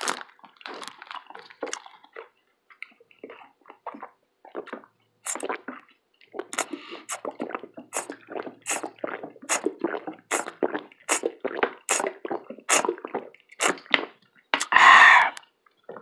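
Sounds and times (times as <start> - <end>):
wet open-mouth chewing: 0.0 - 16.0
lip smack: 6.5 - 7.2, 13.6 - 15.4.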